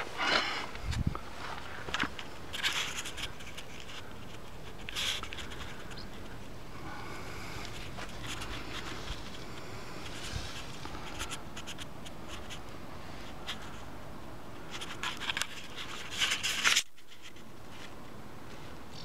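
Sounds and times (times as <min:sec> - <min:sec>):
handling noise on microphone: 0:00.0 - 0:13.9, 0:14.6 - 0:19.0.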